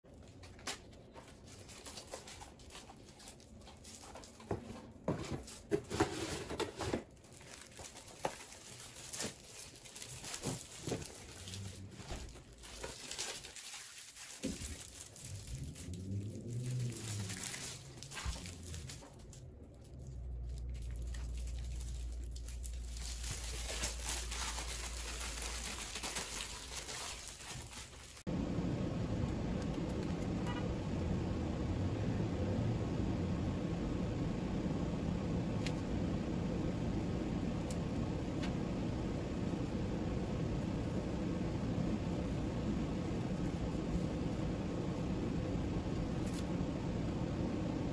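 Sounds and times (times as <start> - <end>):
plastic wrap crinkling: 0.1 - 28.3
low steady hum: 0.1 - 47.9.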